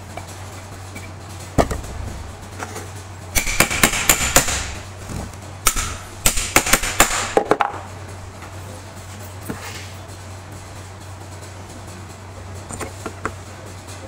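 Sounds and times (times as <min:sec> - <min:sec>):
metal parts knocking and clacking: 0:00.1 - 0:07.9.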